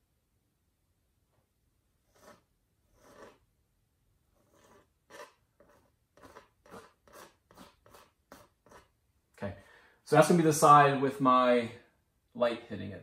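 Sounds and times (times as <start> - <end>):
palette knife scraping paint: 2.0 - 3.5, 4.3 - 9.0.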